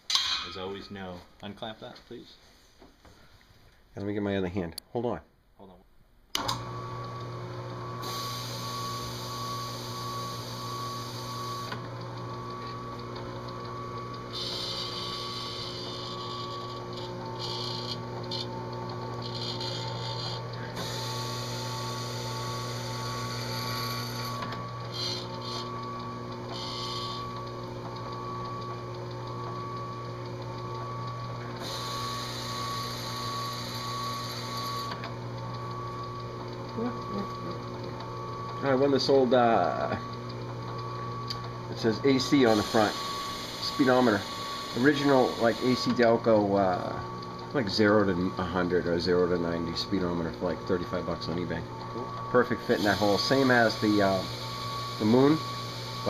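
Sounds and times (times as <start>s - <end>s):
drill press motor humming: 6.3s - 56.0s
abrasive grinding hiss on metal: 42.3s - 45.9s, 52.6s - 56.0s.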